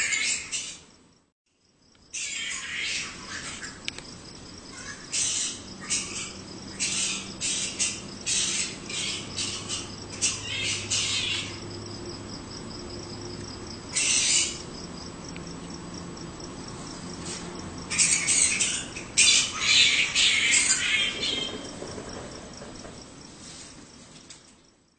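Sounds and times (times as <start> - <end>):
harsh animal squawking calls: 0.0 - 0.8, 2.1 - 3.8, 4.6 - 11.7, 13.9 - 14.7, 17.9 - 21.7
faint ticking insect chirp: 0.1 - 24.9.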